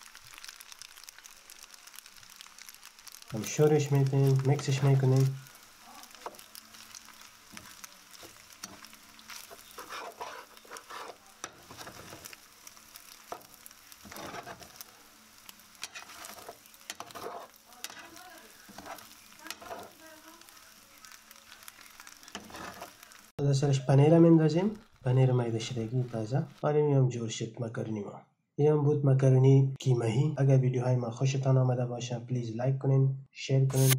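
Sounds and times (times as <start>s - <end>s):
food sizzling: 0.0s - 26.6s
spatula scraping frying pan: 0.4s - 23.3s.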